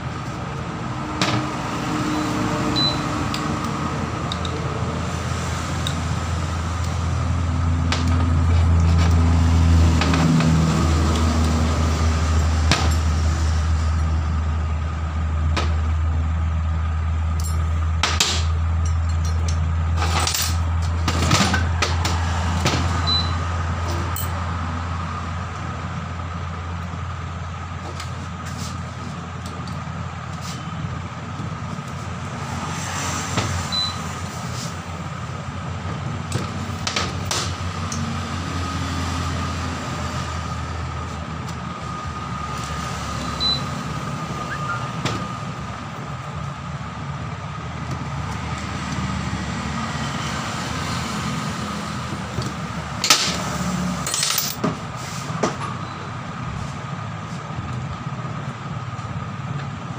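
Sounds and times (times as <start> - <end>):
metal tools clinking: 17.4 - 17.8, 18.8 - 20.7, 54.0 - 54.7.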